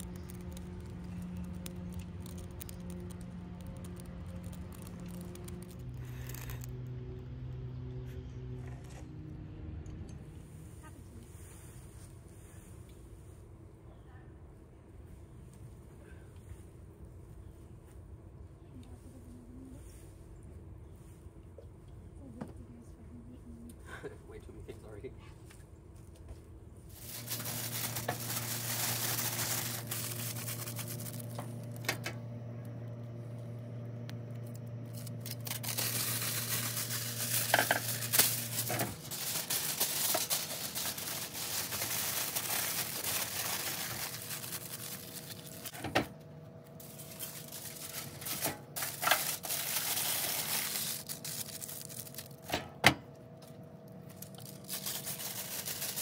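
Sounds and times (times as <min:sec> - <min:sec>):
aluminum foil crinkling: 0:00.0 - 0:07.0, 0:26.9 - 0:32.2, 0:34.1 - 0:45.9, 0:46.7 - 0:52.5, 0:53.9 - 0:56.0
low steady hum: 0:00.0 - 0:56.0.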